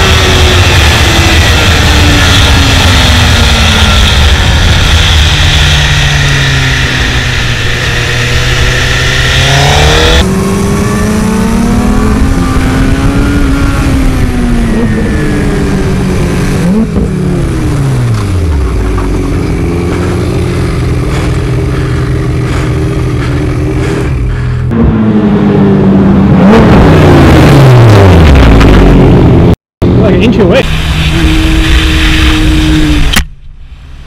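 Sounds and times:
motorcycle engine revving: 0:00.0 - 0:33.4
wind noise on microphone: 0:10.0 - 0:16.6, 0:30.6 - 0:33.6.

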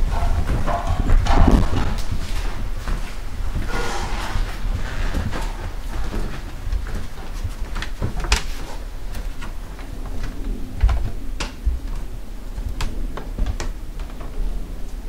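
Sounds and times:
footsteps clicking: 0:00.0 - 0:15.0.

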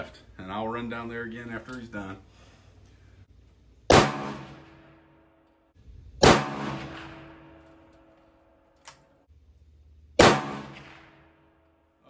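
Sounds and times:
rifle shots with echo: 0:03.9 - 0:05.1, 0:06.2 - 0:07.8, 0:10.2 - 0:11.5.

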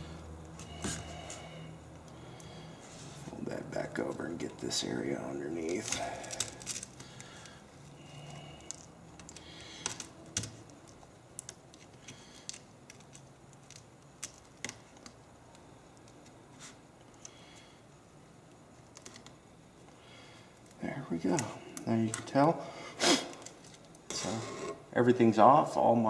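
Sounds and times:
tape peeling and glass clicking: 0:05.6 - 0:07.6, 0:08.5 - 0:16.4, 0:18.4 - 0:19.4.

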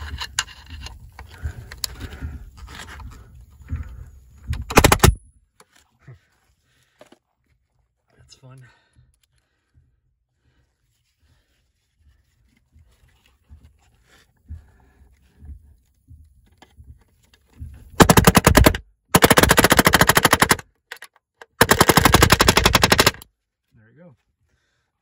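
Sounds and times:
faint handling and scraping: 0:00.0 - 0:04.6, 0:05.4 - 0:18.0
palm nailer hammering: 0:18.0 - 0:20.6, 0:21.5 - 0:23.2.

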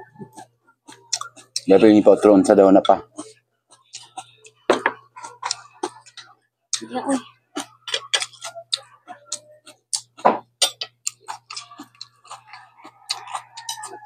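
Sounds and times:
person chewing and lip-smacking: 0:00.1 - 0:01.7, 0:02.8 - 0:14.0
mouth clicks: 0:00.2 - 0:01.7, 0:07.6 - 0:13.9.

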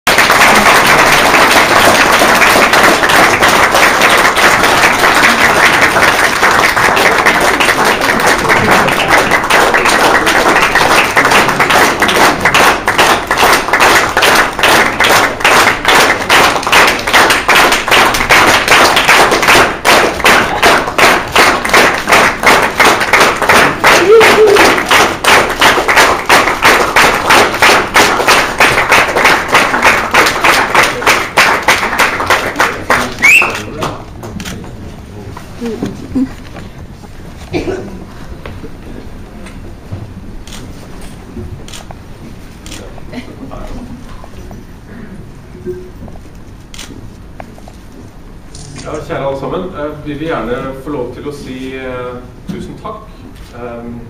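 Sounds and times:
audience applauding: 0:00.1 - 0:33.8
rhythmic clapping in unison: 0:00.1 - 0:34.4.

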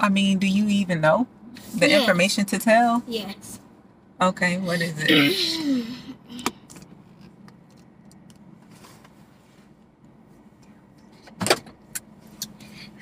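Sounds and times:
scratching and rustling handling noise: 0:06.9 - 0:11.3.

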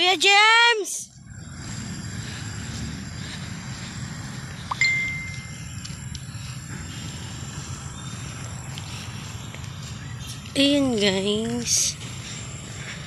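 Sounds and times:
low outdoor rumble: 0:00.0 - 0:13.0
high clear ding: 0:04.7 - 0:05.5.

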